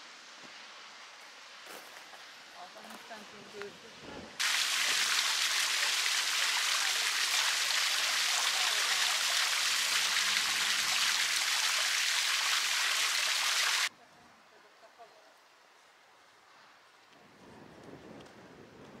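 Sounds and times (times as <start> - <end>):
fountain water splashing: 4.4 - 13.9.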